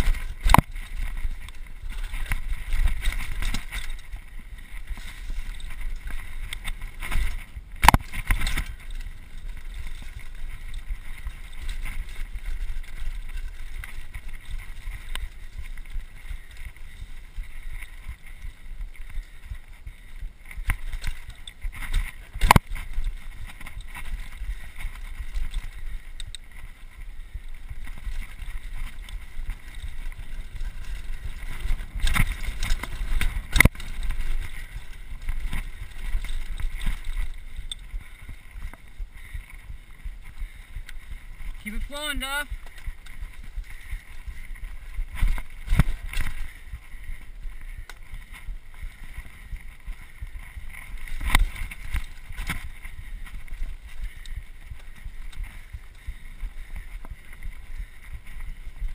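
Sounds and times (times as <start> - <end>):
bike clattering: 20.4 - 41.6.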